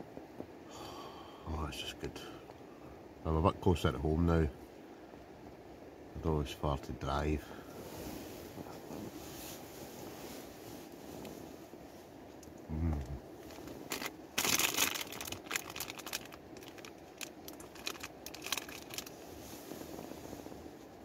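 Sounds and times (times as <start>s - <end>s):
plastic packet crinkling: 13.5s - 19.2s.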